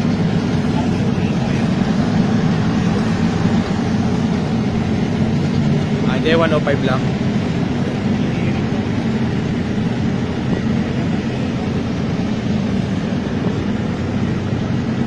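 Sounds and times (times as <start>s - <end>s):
truck engines droning: 0.0s - 15.0s.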